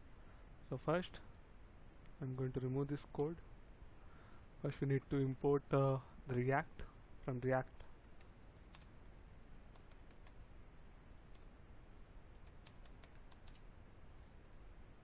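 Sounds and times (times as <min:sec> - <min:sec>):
low hiss: 0:00.0 - 0:15.0
keyboard typing: 0:08.0 - 0:08.9, 0:09.7 - 0:10.4, 0:12.3 - 0:13.7.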